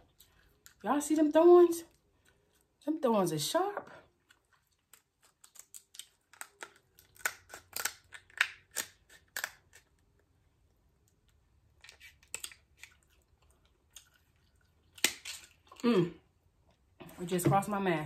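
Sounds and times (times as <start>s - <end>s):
scissors snipping crab shell: 4.9s - 9.8s.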